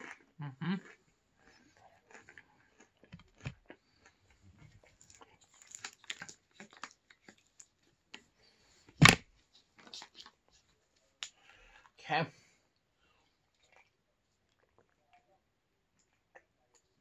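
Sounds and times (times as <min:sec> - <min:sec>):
soft chewing: 0:00.0 - 0:17.0.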